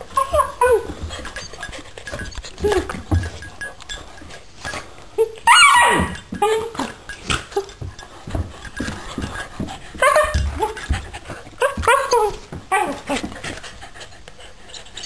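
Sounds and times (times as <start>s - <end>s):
dog yelping: 0.1s - 1.0s, 5.4s - 6.7s
dog yipping: 0.1s - 1.0s, 5.4s - 6.8s.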